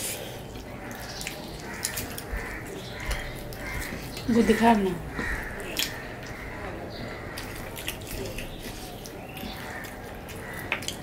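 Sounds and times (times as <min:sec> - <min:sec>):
chewing and lip smacks: 0:00.4 - 0:04.3, 0:07.3 - 0:11.0.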